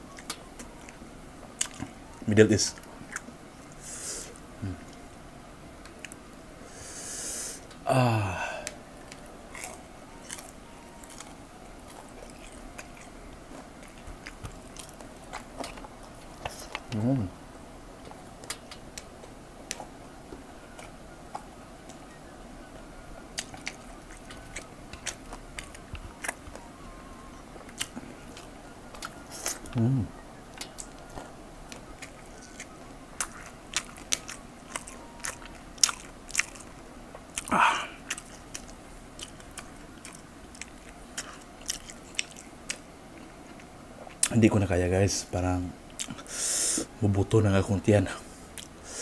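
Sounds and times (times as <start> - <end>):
man chewing with wet mouth clicks: 0.0 - 2.0, 2.7 - 3.7, 5.8 - 6.2, 8.6 - 17.1, 18.0 - 22.1, 23.3 - 44.4, 45.9 - 46.9, 48.5 - 48.8.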